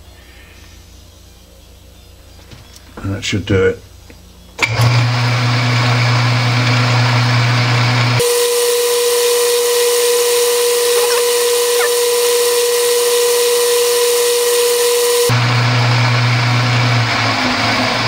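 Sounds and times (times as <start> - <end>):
lathe running: 4.6 - 18.0.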